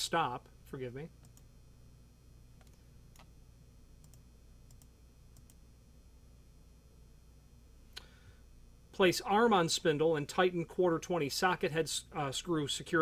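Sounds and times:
low room hum: 0:00.0 - 0:13.0
computer mouse clicks: 0:02.6 - 0:03.3, 0:04.0 - 0:05.6.

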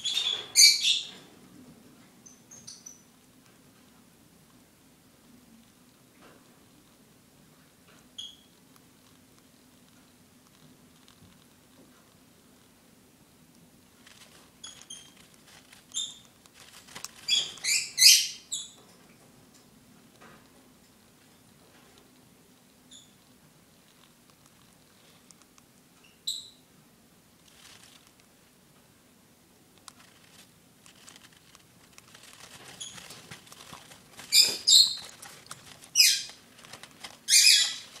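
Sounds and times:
baby bird cheeping: 0:00.0 - 0:01.2, 0:14.6 - 0:15.2, 0:15.9 - 0:16.2, 0:17.2 - 0:18.8, 0:34.2 - 0:35.3, 0:35.9 - 0:36.4, 0:37.2 - 0:38.0
handling rustling and ticking: 0:13.5 - 0:17.7, 0:27.4 - 0:28.3, 0:29.7 - 0:38.0.

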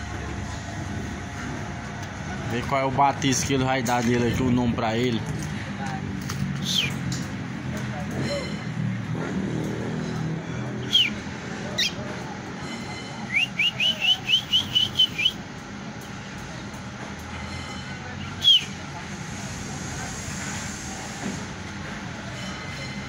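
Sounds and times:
bird whistling song: 0:06.6 - 0:07.0, 0:10.8 - 0:11.2, 0:11.8 - 0:12.0, 0:13.3 - 0:15.4, 0:18.2 - 0:18.8.

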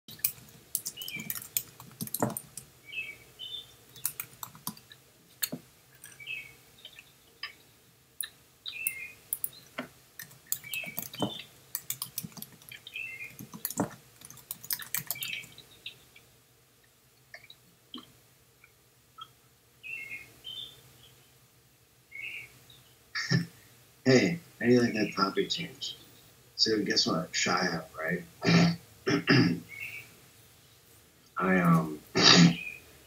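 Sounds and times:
typing on keyboard: 0:00.1 - 0:02.7, 0:03.9 - 0:06.2, 0:09.3 - 0:09.5, 0:10.2 - 0:15.5.

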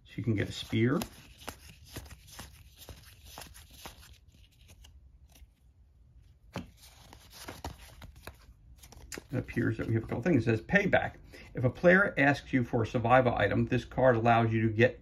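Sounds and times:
paper cards clicking and sliding: 0:00.3 - 0:05.5, 0:06.5 - 0:10.2.

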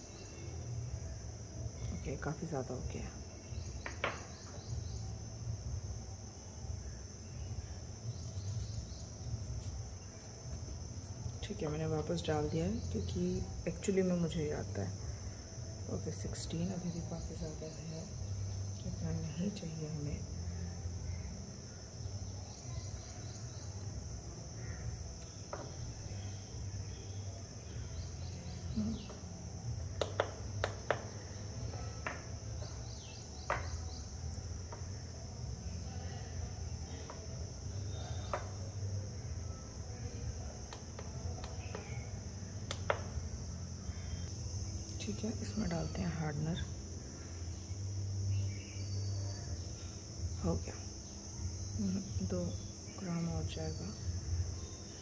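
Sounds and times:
crickets trilling: 0:00.0 - 0:55.0
plastic cup clicks and taps: 0:30.0 - 0:31.2, 0:33.5 - 0:33.7, 0:42.7 - 0:43.1.

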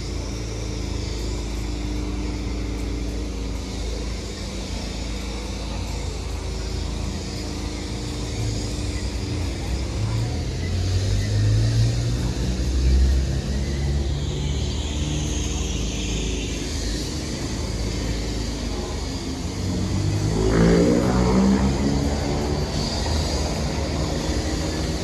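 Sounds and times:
vehicle engines running: 0:00.0 - 0:25.0
vehicle pulling away: 0:16.7 - 0:25.0.

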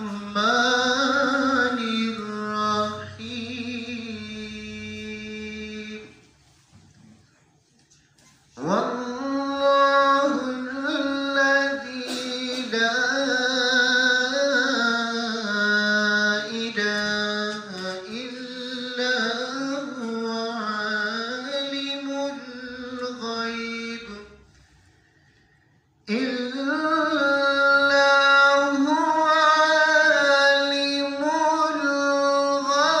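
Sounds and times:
man reciting melodically: 0:00.0 - 0:06.4, 0:08.3 - 0:33.0.

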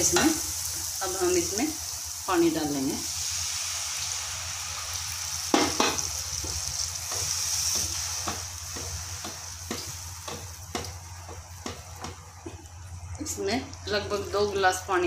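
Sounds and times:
water sizzling in hot pan: 0:00.0 - 0:15.0.

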